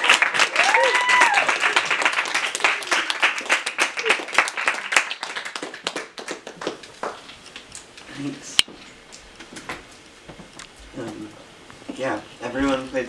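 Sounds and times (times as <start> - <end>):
audience clapping: 0.0 - 8.1.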